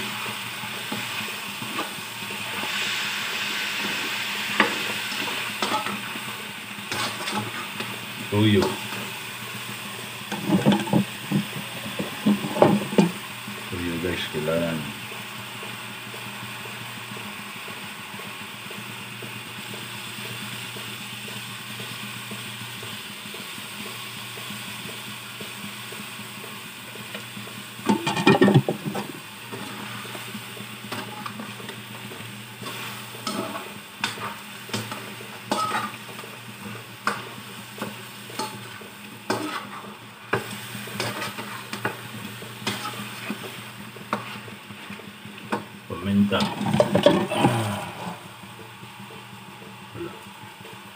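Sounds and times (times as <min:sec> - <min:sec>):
chicken sizzling in a pan: 0:00.0 - 0:50.9
metal spatula scraping pan: 0:39.3 - 0:39.8, 0:41.0 - 0:41.8.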